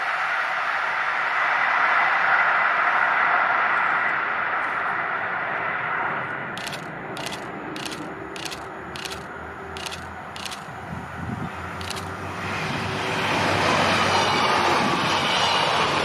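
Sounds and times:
train rushing past: 0:05.4 - 0:16.0
sharp high clicks: 0:06.6 - 0:10.8, 0:11.7 - 0:12.2.

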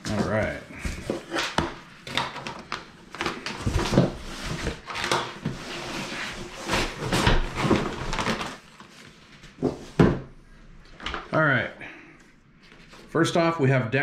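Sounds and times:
cardboard box scrapes and rustles: 0:05.5 - 0:08.0.

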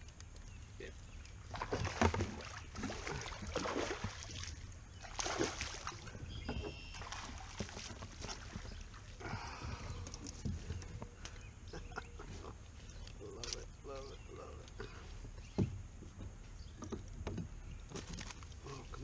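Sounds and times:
fish thrashing and splashing: 0:01.4 - 0:11.0.

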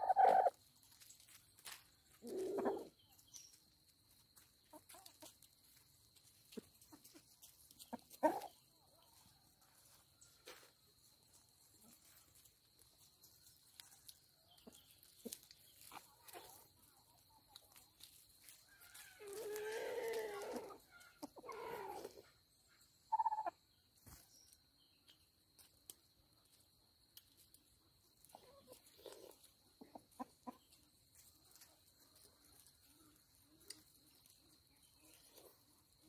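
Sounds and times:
chickens calling: 0:00.0 - 0:03.5, 0:04.4 - 0:10.7, 0:13.0 - 0:24.2.

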